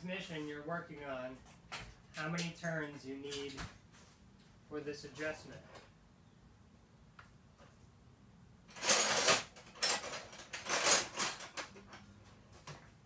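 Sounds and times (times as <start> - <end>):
metal hand tools clattering: 8.7 - 11.9.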